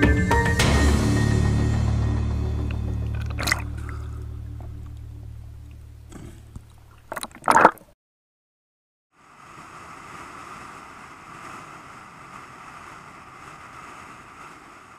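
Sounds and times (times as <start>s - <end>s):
water splashing against camera: 2.7s - 7.9s
wind noise: 9.2s - 14.9s.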